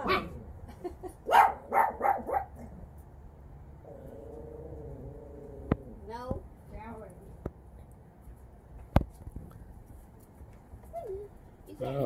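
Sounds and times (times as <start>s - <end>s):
puppies barking: 0.0s - 0.5s, 1.3s - 2.8s.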